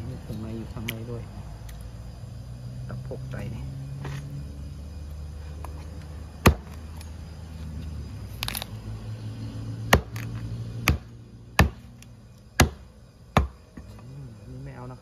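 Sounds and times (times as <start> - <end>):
low steady hum: 0.0 - 15.0
knife chopping on wooden block: 6.4 - 6.7, 9.9 - 11.8, 12.6 - 12.8, 13.4 - 13.6
crackle of small cuts: 6.7 - 8.8.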